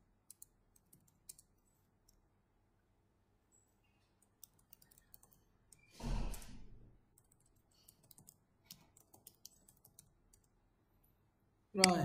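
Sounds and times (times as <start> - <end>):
keyboard typing: 0.2 - 2.2, 4.2 - 6.4, 7.1 - 10.6.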